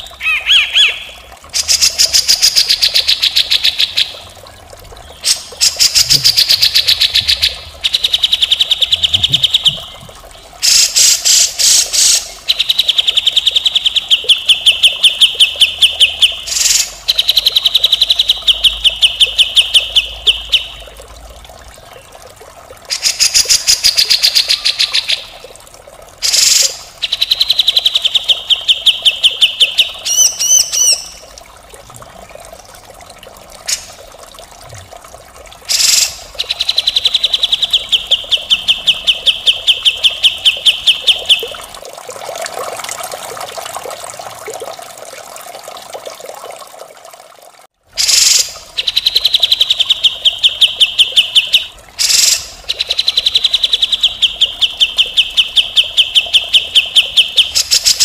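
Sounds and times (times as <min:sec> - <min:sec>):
bulbul chattering song: 0:00.0 - 0:04.2, 0:10.6 - 0:20.9, 0:26.2 - 0:31.3, 0:35.7 - 0:41.6, 0:48.0 - 0:58.0.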